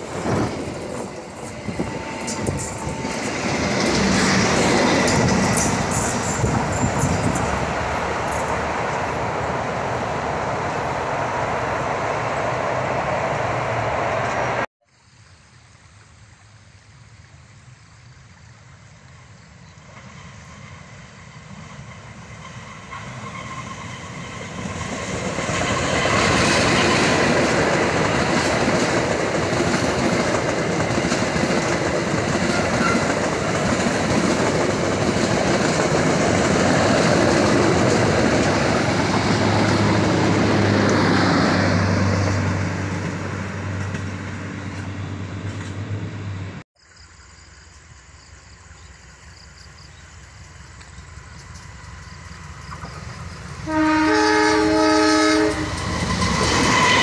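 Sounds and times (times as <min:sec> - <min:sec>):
train wheels clattering on rails: 0:00.0 - 0:09.6, 0:19.9 - 0:45.9, 0:55.4 - 0:57.0.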